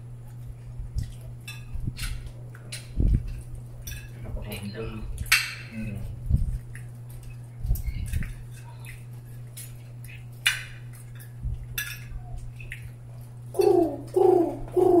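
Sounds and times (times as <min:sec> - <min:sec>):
steady low hum: 0:00.0 - 0:15.0
cutlery clinking on plates: 0:01.4 - 0:06.0, 0:08.0 - 0:12.9.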